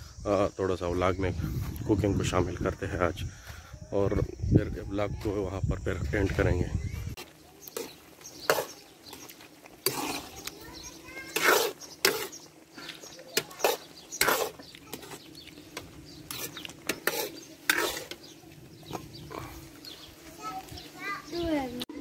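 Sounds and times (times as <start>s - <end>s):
metal ladle scraping a pan: 7.2s - 19.8s.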